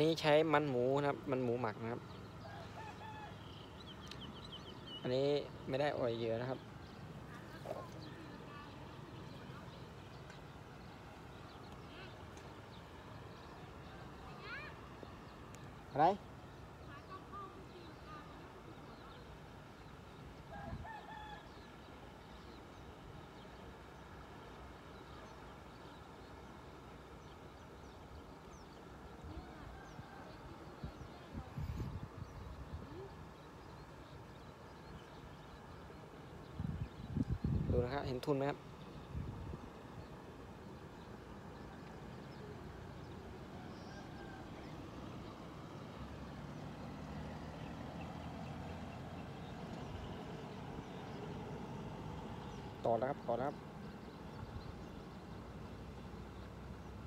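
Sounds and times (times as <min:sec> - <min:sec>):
faint rooster crowing: 0:02.4 - 0:03.8, 0:20.5 - 0:21.7, 0:29.6 - 0:30.6
road traffic rumble: 0:34.6 - 0:57.0
vehicle approaching: 0:44.1 - 0:52.8.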